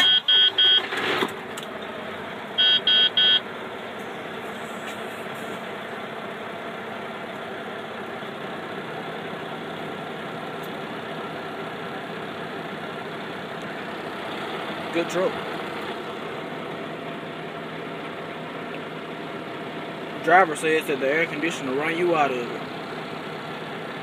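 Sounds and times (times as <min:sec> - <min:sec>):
short electronic beeps: 0:00.0 - 0:00.9, 0:02.6 - 0:03.4
diesel engine idling: 0:00.0 - 0:24.0.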